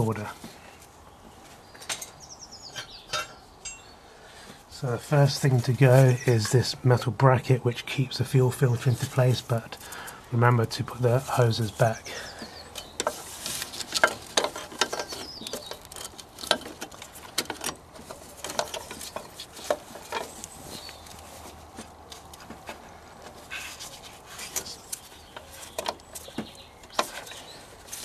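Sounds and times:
plastic and metal parts clicking: 0:12.8 - 0:20.4.

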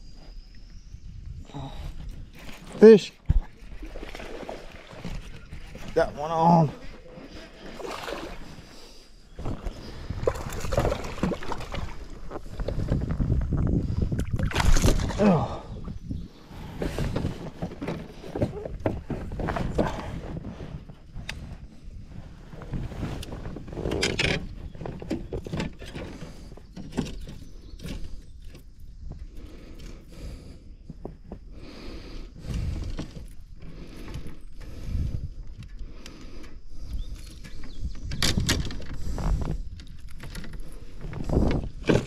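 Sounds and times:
wind rumble on microphone: 0:00.0 - 0:02.5, 0:09.3 - 0:29.6, 0:32.3 - 0:36.0, 0:36.7 - 0:42.0
fishing gear clicking and rattling: 0:23.2 - 0:28.8, 0:35.2 - 0:42.0.

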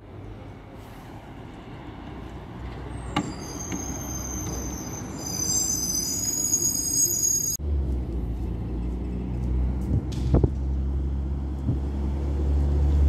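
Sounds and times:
bus engine and tyre rumble: 0:00.0 - 0:13.0
high multi-pitched squeal: 0:03.2 - 0:07.6.

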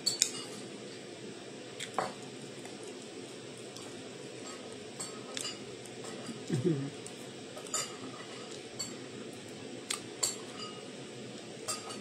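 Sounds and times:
tableware clinking: 0:10.2 - 0:10.8, 0:11.7 - 0:12.0.

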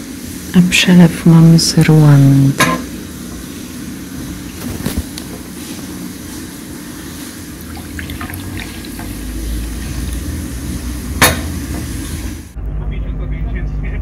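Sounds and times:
coffee trickling into cup: 0:07.6 - 0:09.3.

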